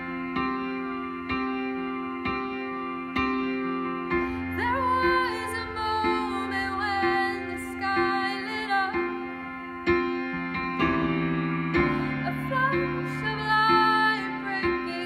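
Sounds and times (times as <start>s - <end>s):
electric keyboard chords and melody: 0.0s - 15.0s
woman singing: 4.5s - 9.3s, 12.0s - 15.0s.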